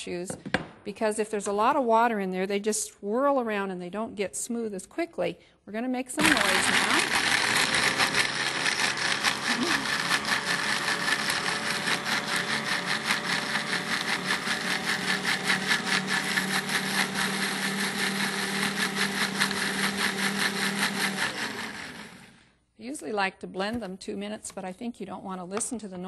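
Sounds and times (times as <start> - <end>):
blender grinding: 6.2 - 22.5.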